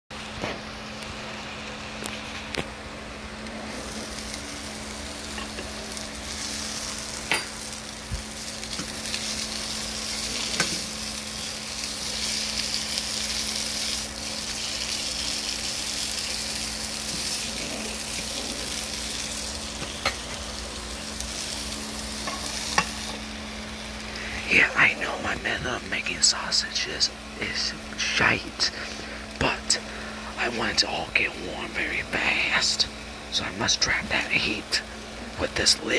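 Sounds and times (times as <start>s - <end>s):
low hum: 0.4s - 35.9s
sausages sizzling in a pan: 3.6s - 24.4s.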